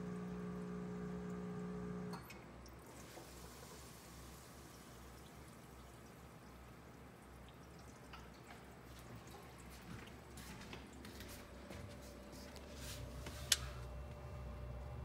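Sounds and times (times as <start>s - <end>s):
low steady hum: 0.0s - 10.4s, 11.0s - 15.0s
water trickling and dripping: 1.0s - 12.7s.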